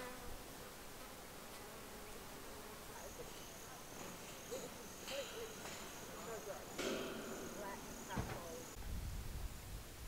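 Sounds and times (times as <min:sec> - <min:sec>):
insects buzzing: 0:00.0 - 0:08.8
high insect trill: 0:02.2 - 0:08.8.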